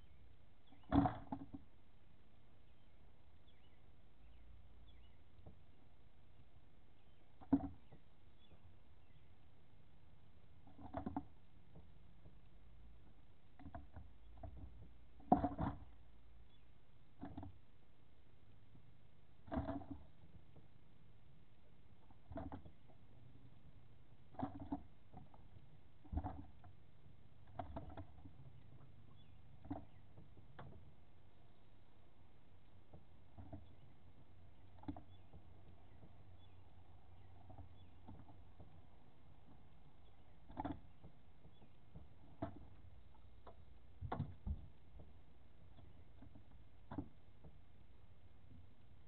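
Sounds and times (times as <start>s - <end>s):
faint background noise: 0.0s - 49.0s
knocks in aluminum boat: 0.8s - 1.6s.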